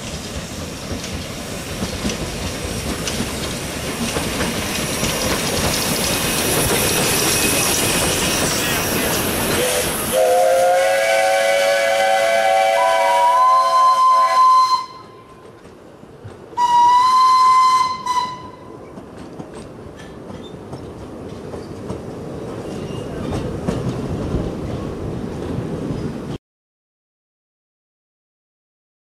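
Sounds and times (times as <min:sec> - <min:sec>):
train wheels clicking over rail joints: 0:00.0 - 0:10.2, 0:15.0 - 0:16.9, 0:17.8 - 0:26.2
high steam whistle: 0:06.3 - 0:15.4, 0:16.6 - 0:18.8
low steam whistle: 0:09.5 - 0:15.4, 0:16.6 - 0:18.8.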